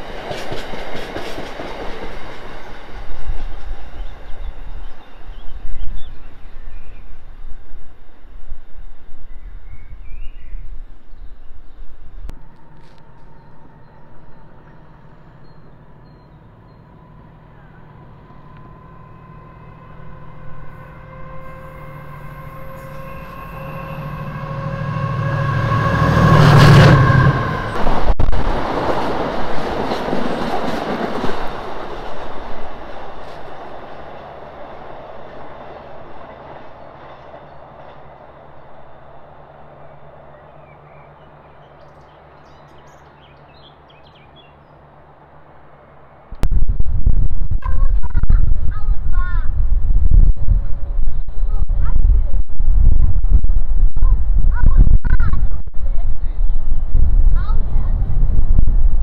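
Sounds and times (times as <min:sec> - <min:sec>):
train wheels clattering on rails: 0:00.0 - 0:03.8, 0:27.7 - 0:38.2
diesel locomotive engine: 0:00.0 - 0:59.0.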